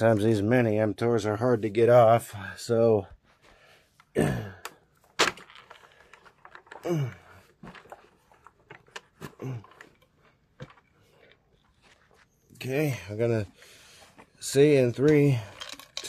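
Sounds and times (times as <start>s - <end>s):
person grunting: 4.2s - 4.6s, 6.8s - 7.4s, 9.2s - 9.8s.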